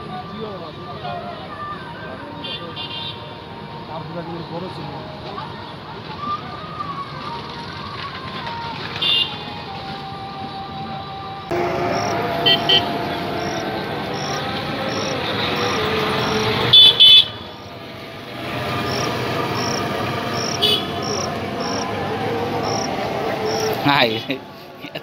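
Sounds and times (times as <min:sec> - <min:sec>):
high-pitched toot: 0:11.5 - 0:17.6
insect chirping: 0:11.9 - 0:12.8, 0:13.4 - 0:17.8, 0:18.7 - 0:22.0, 0:22.6 - 0:23.8.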